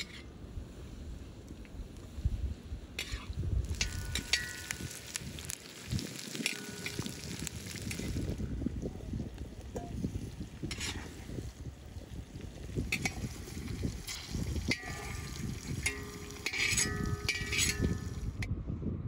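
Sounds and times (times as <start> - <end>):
oil sizzling: 3.0 - 18.4
metal skimmer scraping a steel pan: 10.6 - 11.1, 14.0 - 18.2.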